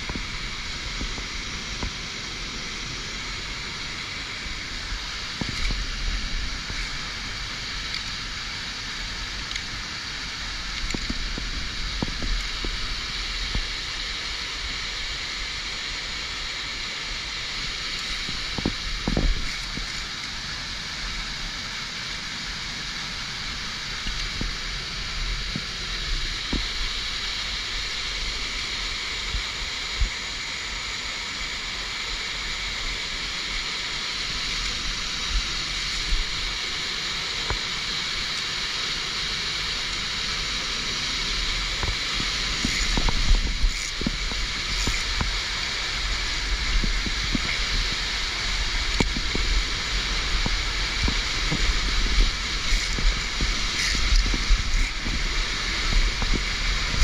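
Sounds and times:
roaring waterfall: 0.0s - 57.0s.

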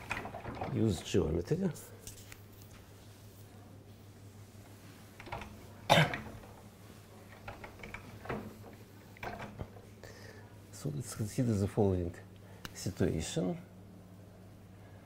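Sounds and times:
loud cough: 5.9s - 6.3s.

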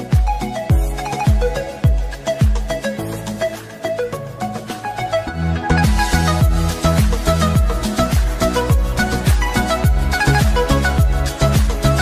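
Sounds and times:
bass line: 4.4s - 12.0s.

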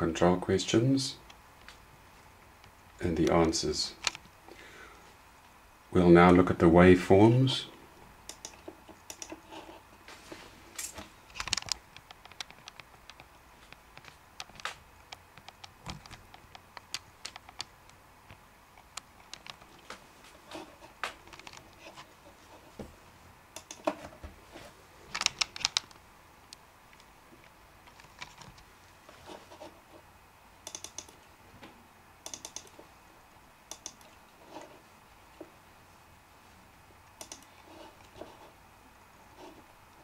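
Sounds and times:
mouse clicks: 8.3s - 9.4s, 23.6s - 23.8s, 30.6s - 31.2s, 32.2s - 32.7s, 33.7s - 34.2s, 37.1s - 37.5s
keyboard tapping: 30.7s - 31.2s, 32.2s - 32.8s.

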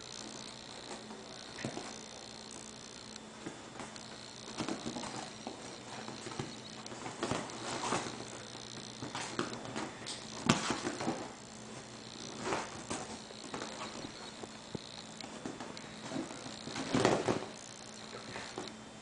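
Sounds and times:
hooves thumping on cushions: 3.4s - 17.6s.

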